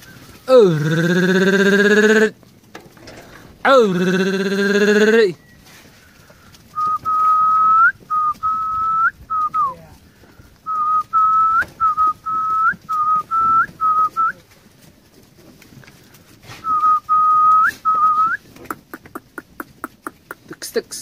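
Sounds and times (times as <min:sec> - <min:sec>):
person whistling short notes: 0:06.8 - 0:09.8, 0:16.5 - 0:18.4.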